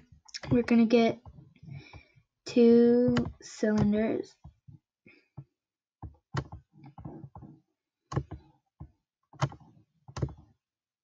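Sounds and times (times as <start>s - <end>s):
computer mouse clicks: 9.4s - 10.4s.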